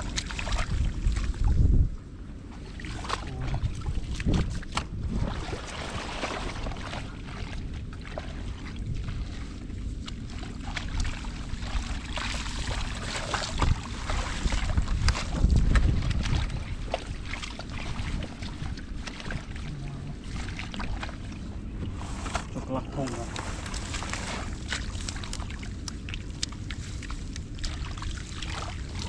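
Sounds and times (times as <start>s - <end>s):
hands squelching in wet mud: 0.0s - 1.6s, 2.6s - 29.0s
wind buffeting microphone: 0.0s - 2.6s, 3.2s - 10.0s, 10.9s - 24.7s.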